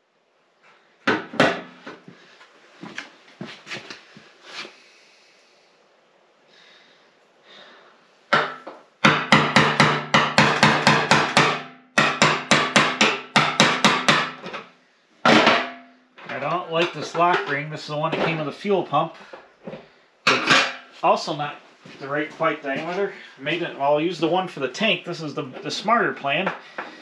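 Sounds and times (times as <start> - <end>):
steel tank ringing: 15.3 - 16.0.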